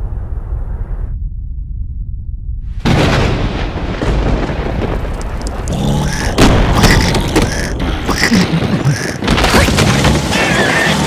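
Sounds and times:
thunder rumble: 0.0s - 10.5s
heavy thuds of hailstones: 2.9s - 7.7s.

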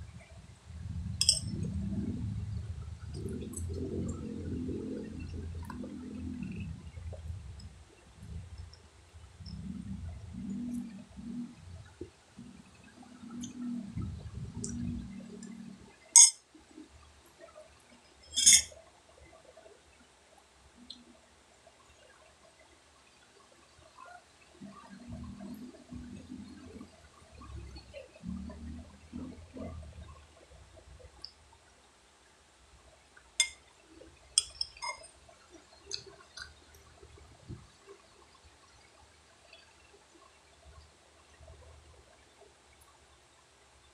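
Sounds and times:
metal spoon clinking: 1.2s - 1.6s, 16.2s - 16.4s, 18.3s - 18.7s, 34.4s - 35.0s
eating and mouth sounds: 35.8s - 37.0s.

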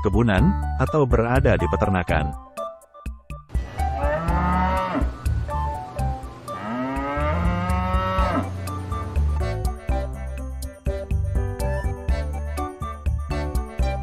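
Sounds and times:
background music with beat: 2.3s - 14.0s
cow mooing: 3.8s - 5.3s, 6.5s - 8.7s.

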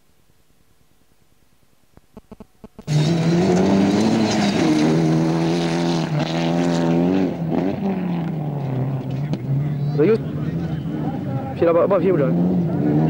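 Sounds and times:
rally car engine at full throttle: 2.8s - 13.0s.

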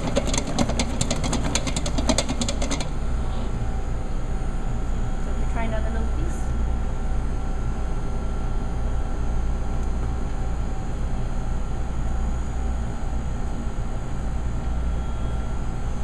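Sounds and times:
mixer motor hum: 0.0s - 4.0s.

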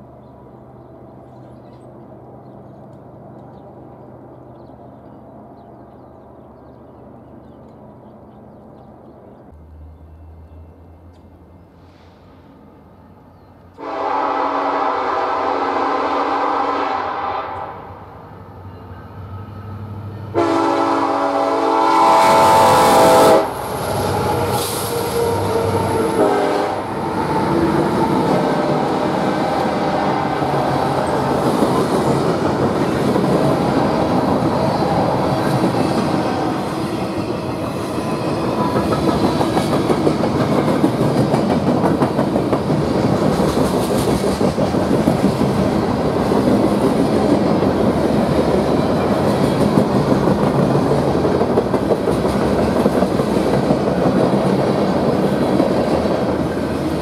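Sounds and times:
train wheels on rails: 0.0s - 57.0s
locomotive air horn: 13.8s - 18.0s, 20.3s - 27.0s.

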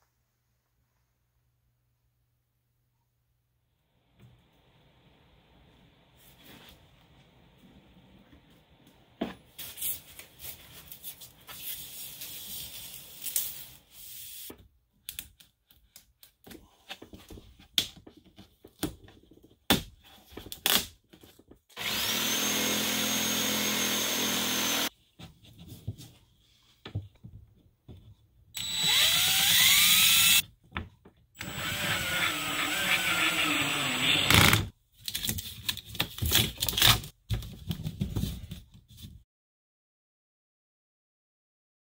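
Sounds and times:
cordless drill running: 21.8s - 24.9s, 28.6s - 30.4s, 31.4s - 34.7s.

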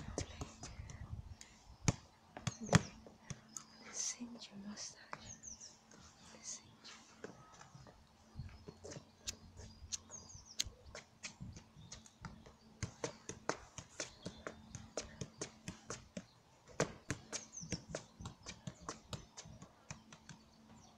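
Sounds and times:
football tapped off foot: 1.8s - 3.5s, 10.9s - 20.5s.

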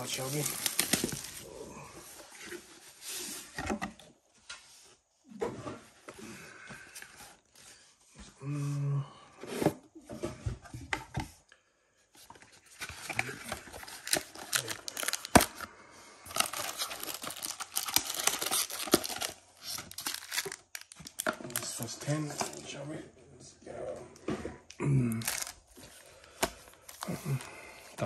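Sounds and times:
packaging crinkling and tearing: 0.0s - 1.5s, 12.7s - 22.6s, 25.1s - 27.5s.

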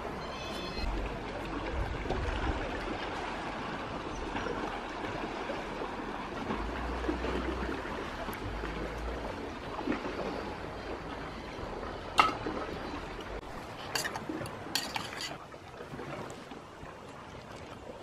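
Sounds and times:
waves lapping on rocky shore: 0.0s - 18.0s
wind rumble on microphone: 0.8s - 12.0s.

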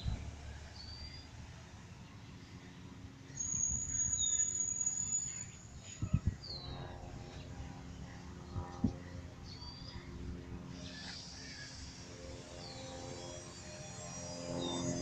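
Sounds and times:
small birds chirping: 3.3s - 7.5s.

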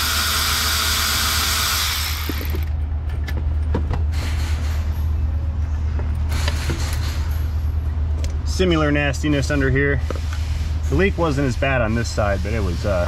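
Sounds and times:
light knocks and clunks: 3.1s - 4.1s.

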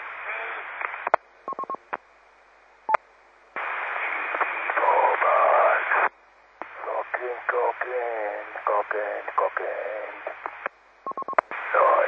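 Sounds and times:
radio hiss with wavering tones: 0.0s - 2.0s, 3.6s - 12.0s
radio clicks: 3.6s - 4.9s, 10.2s - 11.7s
quick radio beeps: 11.1s - 11.4s.

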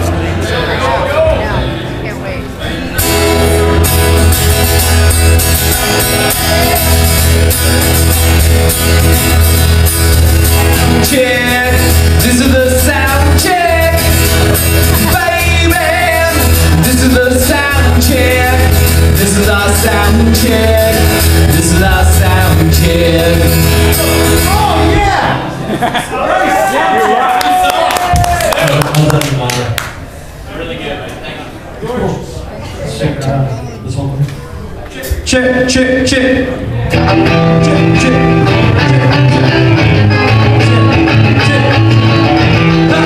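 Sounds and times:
live rock band playing loudly: 1.3s - 25.9s, 36.9s - 43.0s
man singing lead vocal: 10.7s - 25.3s, 35.0s - 43.0s.

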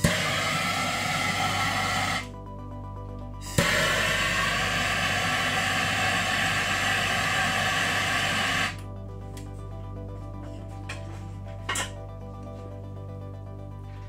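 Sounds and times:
gas torch hissing: 0.0s - 2.3s, 3.4s - 8.8s.

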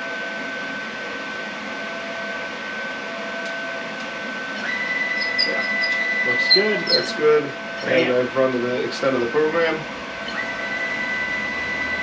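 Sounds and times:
electrical whine with hiss: 0.0s - 12.0s
stepper motors whining: 2.5s - 12.0s.

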